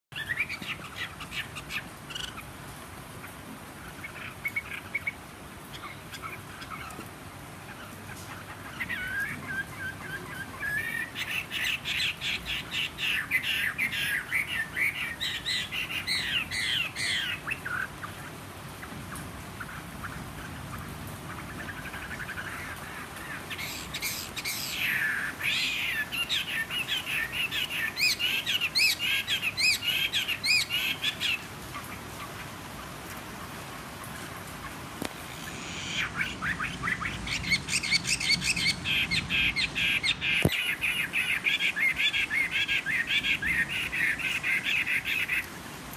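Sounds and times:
bird singing: 0:08.6 - 0:18.2, 0:21.4 - 0:31.4, 0:35.4 - 0:45.5.

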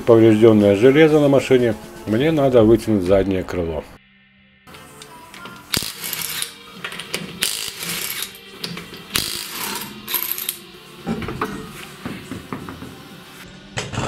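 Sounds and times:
impact wrench bursts: 0:05.7 - 0:08.4, 0:09.1 - 0:10.6.

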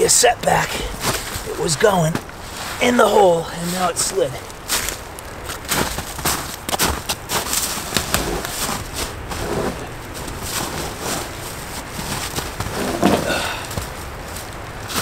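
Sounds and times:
log scraping against rock: 0:00.9 - 0:15.0
boots crunching in snow and leaves: 0:04.6 - 0:15.0.

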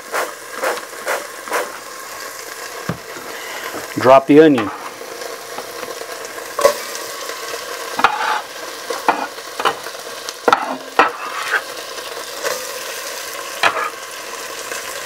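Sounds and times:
onion sizzling in hot oil: 0:00.0 - 0:15.0
sharp knocks in pot: 0:10.5 - 0:11.2.

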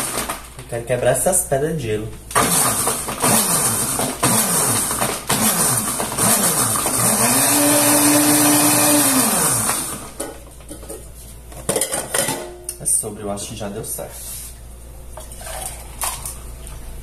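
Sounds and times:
blender crushing ice: 0:00.0 - 0:00.5, 0:02.3 - 0:10.2
blender motor whine: 0:02.4 - 0:10.1.

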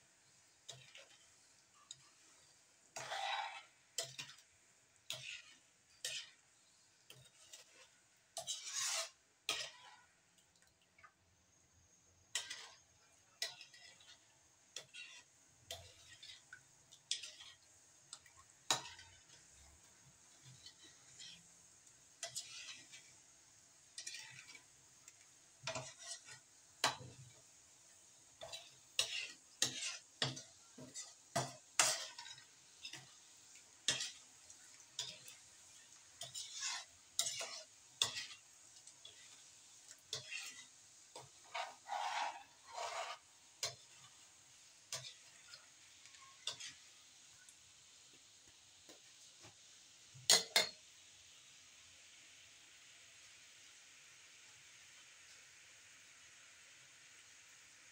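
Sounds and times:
spatula scraping a steel wok: 0:00.4 - 0:10.2, 0:12.3 - 0:47.5.

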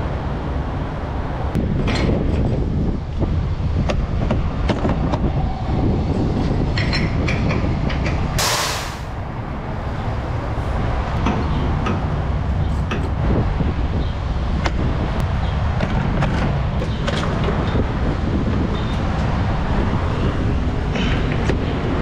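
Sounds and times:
burst of hiss: 0:08.4 - 0:09.1.

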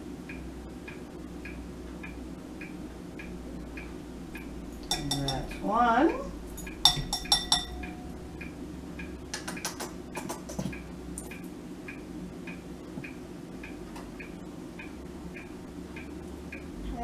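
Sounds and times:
faint regular ticking: 0:00.2 - 0:17.0
metal spoon clinking: 0:04.7 - 0:05.6, 0:06.5 - 0:08.2.

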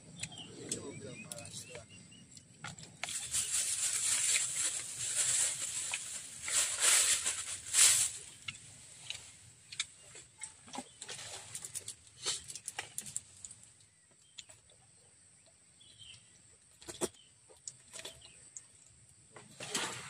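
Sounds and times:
packaging rustling and crinkling: 0:03.0 - 0:08.4.

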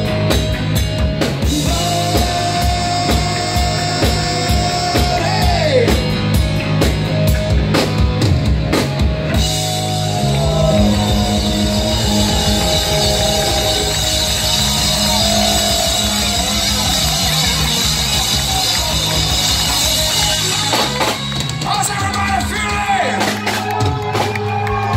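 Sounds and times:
live rock band: 0:00.0 - 0:24.9
person singing: 0:01.4 - 0:06.1, 0:09.6 - 0:17.8
cymbals ringing: 0:11.1 - 0:21.3.

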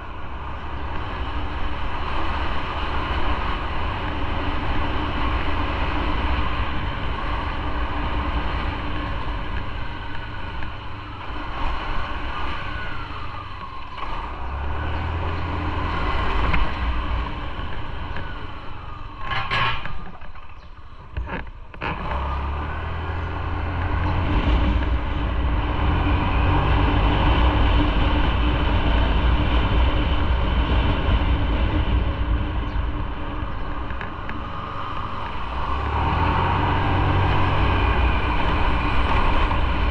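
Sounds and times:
motorcycle engine running: 0:00.0 - 0:39.9
road rumble: 0:00.0 - 0:39.9.

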